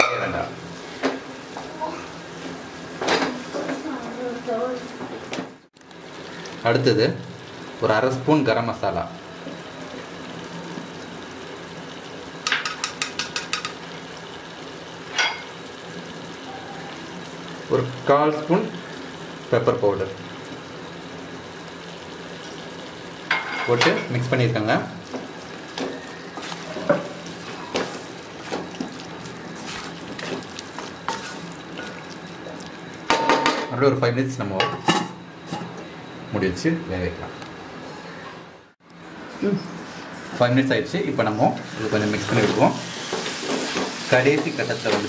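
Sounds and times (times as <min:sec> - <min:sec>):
meat sizzling in a pan: 0:05.9 - 0:33.6, 0:41.0 - 0:45.0
utensil clacking against pan: 0:12.4 - 0:13.8
wooden spatula scraping a pan: 0:26.4 - 0:32.0.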